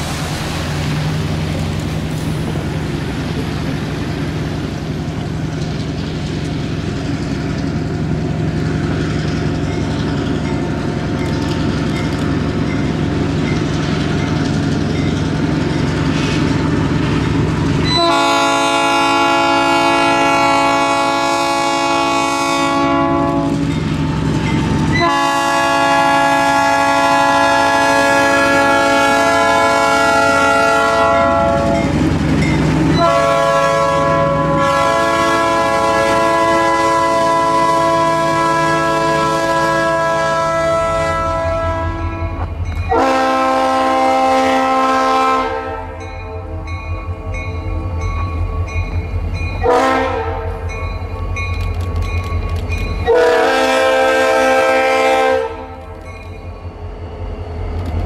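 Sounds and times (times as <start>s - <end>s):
diesel locomotive engine running: 0.0s - 58.0s
locomotive air horn blasts: 17.8s - 23.7s, 24.9s - 32.0s, 32.9s - 46.7s, 49.6s - 50.7s, 53.0s - 56.0s.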